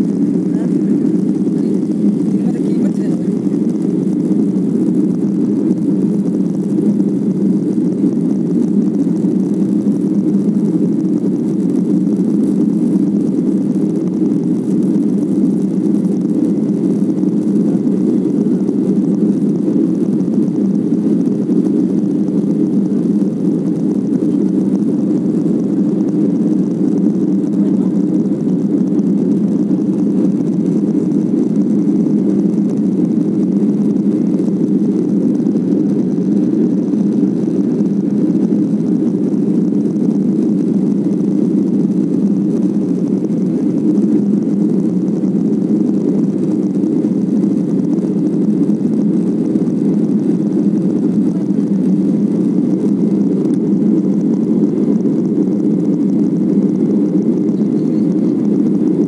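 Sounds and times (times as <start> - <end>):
jet airliner cabin rumble: 0.0 - 59.0.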